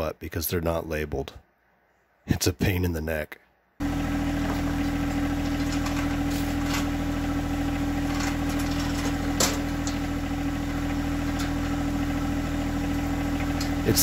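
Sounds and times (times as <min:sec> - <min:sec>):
tractor engine running: 0:03.8 - 0:14.0.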